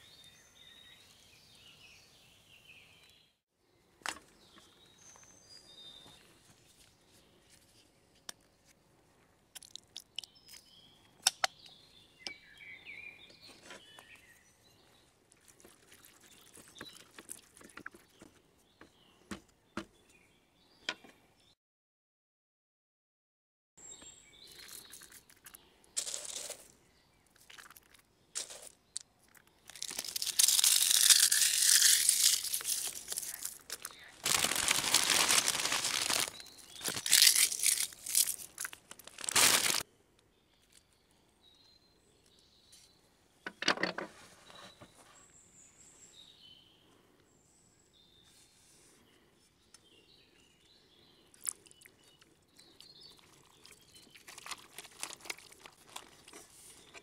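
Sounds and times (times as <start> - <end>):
small bird chirps: 23.8 - 25.7
plastic bag crinkling: 29.6 - 39.8, 54.3 - 56.4.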